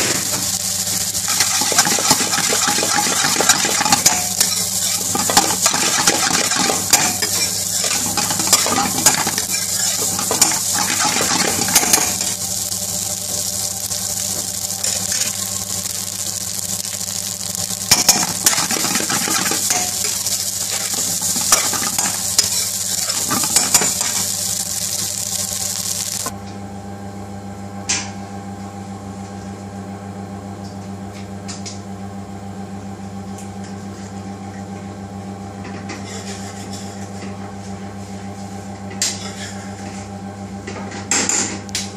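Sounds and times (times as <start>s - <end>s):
food sizzling in a hot pan: 0.0s - 26.3s
steady low hum: 0.0s - 27.7s
metal spatula scraping a pan: 1.3s - 12.4s.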